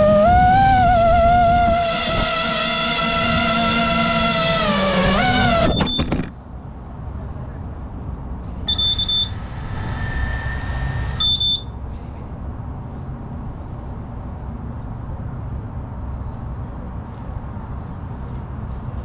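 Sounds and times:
high-pitched electronic beeps: 0.0 - 6.3, 8.7 - 11.8
faint steady tone: 8.7 - 11.8.

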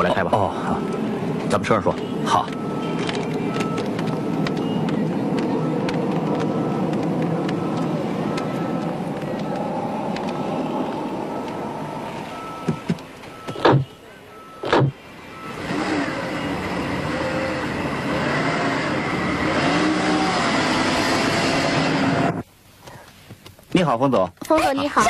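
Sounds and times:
street traffic noise: 0.0 - 25.0
car engine pulling away: 0.8 - 22.4
car doors shutting: 11.4 - 14.0, 14.6 - 15.0.

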